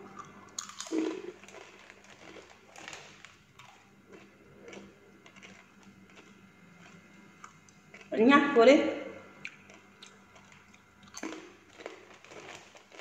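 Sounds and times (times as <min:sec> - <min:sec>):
crunching crispy chips: 0:00.1 - 0:08.1, 0:09.5 - 0:13.0
plastic bag crinkling: 0:00.6 - 0:03.7, 0:10.3 - 0:13.0.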